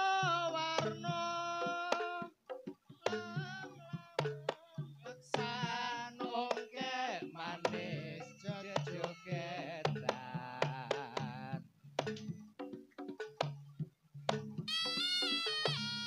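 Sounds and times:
drum strokes: 0.0s - 16.0s
wavering high melody: 14.7s - 16.0s.

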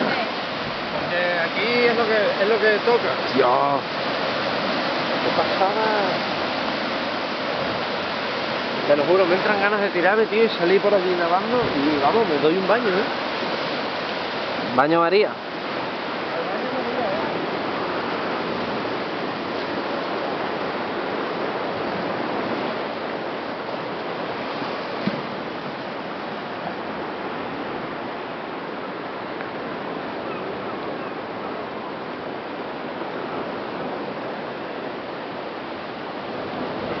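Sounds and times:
surf breaking against cliffs: 0.0s - 37.0s
brief tap: 25.0s - 25.2s.

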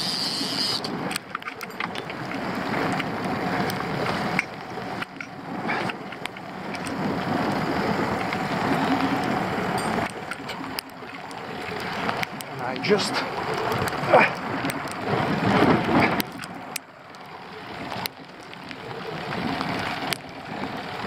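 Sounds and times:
outboard motor running: 0.0s - 21.0s
wind noise: 13.6s - 16.5s.

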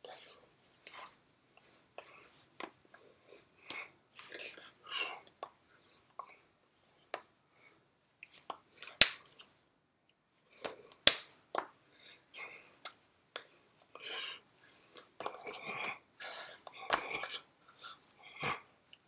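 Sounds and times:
hands slapping and tapping: 2.6s - 2.8s, 8.2s - 9.5s, 10.6s - 11.8s, 16.7s - 17.4s
breathy mouth sounds: 12.0s - 19.0s.

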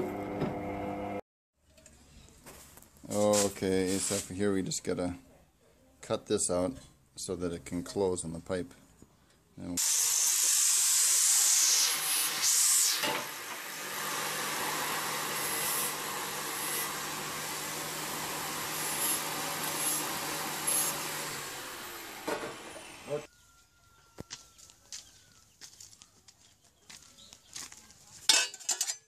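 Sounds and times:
angle grinder cutting steel: 9.8s - 23.3s.

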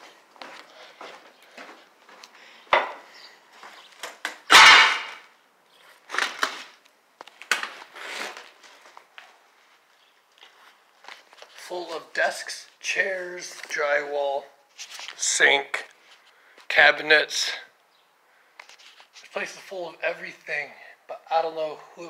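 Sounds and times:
loud crunch: 4.0s - 5.3s, 5.9s - 9.4s
knocks and scrapes of movement: 7.6s - 9.1s.

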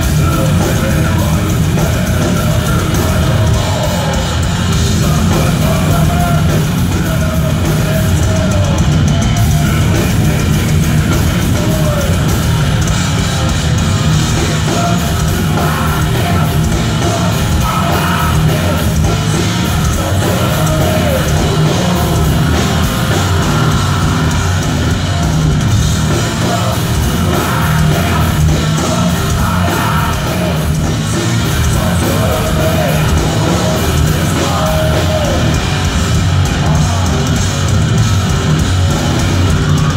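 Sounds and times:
shouted vocals: 0.0s - 13.0s
bass: 0.0s - 39.9s
distorted electric guitars: 0.0s - 39.9s
drum kit: 0.0s - 39.9s.

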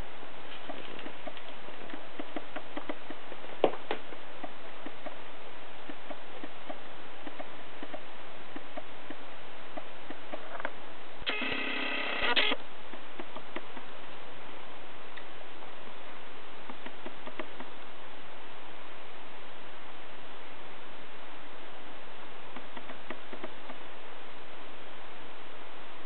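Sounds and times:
electronic tone: 11.3s - 12.6s.

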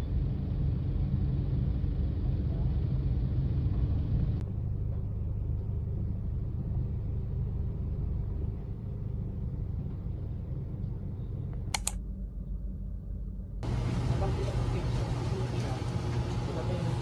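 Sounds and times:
sharp clicks: 11.8s - 12.0s.

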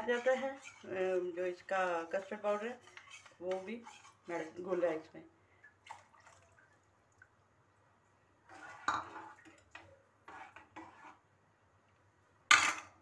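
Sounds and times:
metal spoon scraping saucepan: 0.0s - 4.7s, 8.5s - 11.2s.

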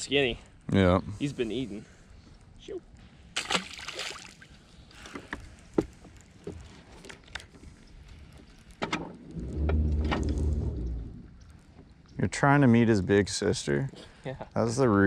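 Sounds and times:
fish splashing into water: 3.4s - 4.5s
low rumble: 9.1s - 11.6s.

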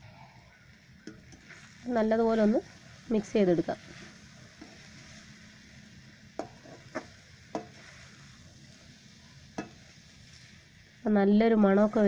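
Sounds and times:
food sizzling in a metal pan: 0.0s - 12.0s
spoon stirring in pan: 1.0s - 1.9s, 2.6s - 10.9s
spoon knocking against pan: 6.4s - 7.8s.

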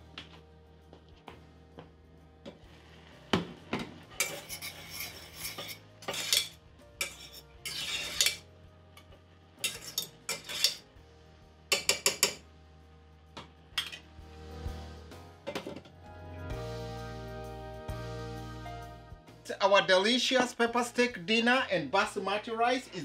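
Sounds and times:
fork scraping metal pot: 4.2s - 8.4s, 9.6s - 10.8s.

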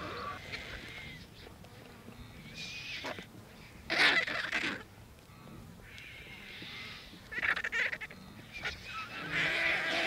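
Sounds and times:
vultures squawking: 0.0s - 1.3s, 3.9s - 4.9s, 5.8s - 10.0s.

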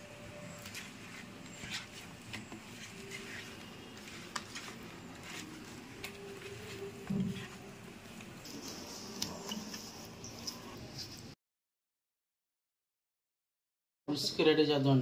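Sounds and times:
hand mixing raw fish: 0.0s - 11.1s.

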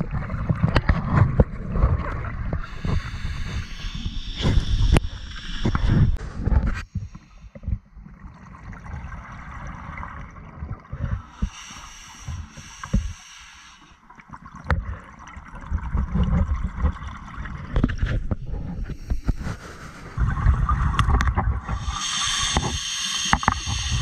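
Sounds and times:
exhaled bubbles gurgling: 0.0s - 24.0s
regulator inhalation hiss: 2.6s - 6.2s, 11.3s - 14.0s, 21.8s - 24.0s.

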